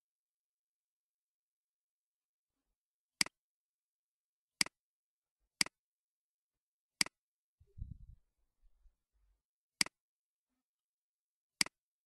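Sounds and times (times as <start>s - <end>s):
soft low thump: 7.7s - 8.2s.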